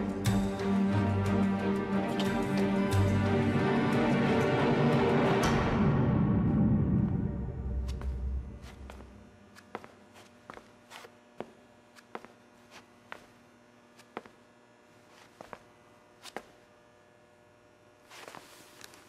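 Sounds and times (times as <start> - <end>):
low electrical hum: 0.0 - 19.0
footsteps on hard floor: 7.8 - 13.4, 14.0 - 14.4, 15.1 - 15.6.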